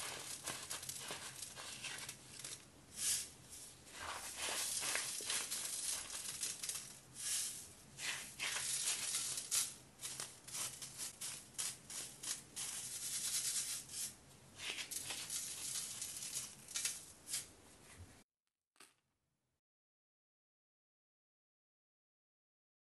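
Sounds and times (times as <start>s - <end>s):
powder lumps rattling in metal sieve: 0.0s - 17.5s.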